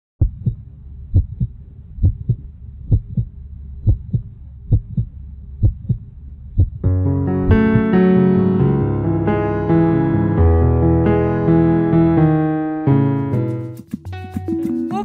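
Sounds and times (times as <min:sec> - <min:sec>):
heartbeat thumps: 0:00.2 - 0:06.9, 0:07.5 - 0:07.9
low steady hum: 0:00.2 - 0:07.8.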